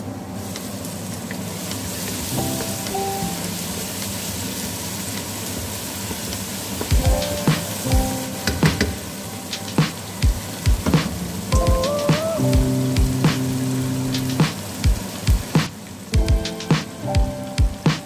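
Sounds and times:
vegetables sizzling in a pot: 0:00.0 - 0:17.6.

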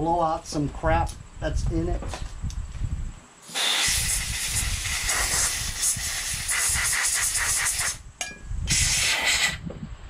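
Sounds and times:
air blow gun hissing: 0:03.4 - 0:08.0, 0:08.7 - 0:09.7.

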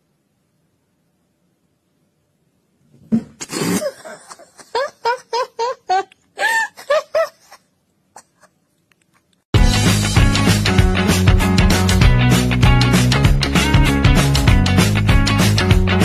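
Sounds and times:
person giggling: 0:03.4 - 0:09.3.

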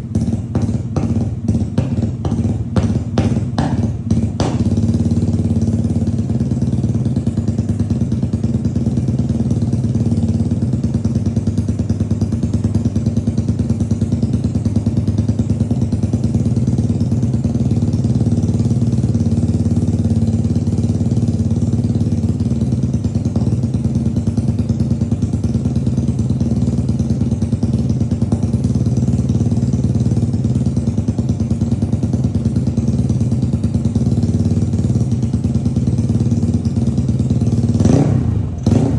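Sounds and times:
scooter engine idling: 0:00.0 - 0:38.9.

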